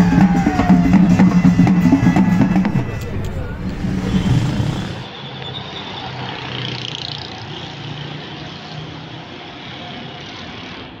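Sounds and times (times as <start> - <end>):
low engine hum: 0.0 - 5.1
road traffic rush: 0.0 - 11.0.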